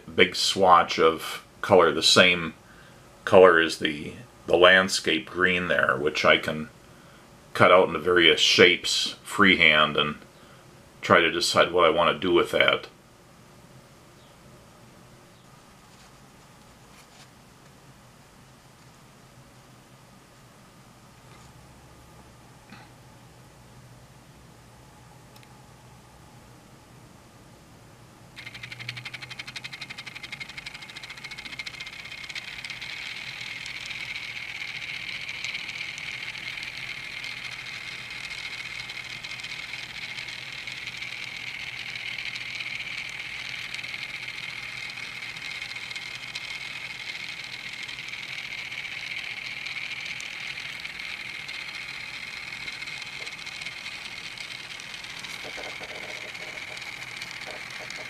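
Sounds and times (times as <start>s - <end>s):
fine rapid rattle: 28.4s - 58.0s
toy train motor whir: 28.4s - 58.0s.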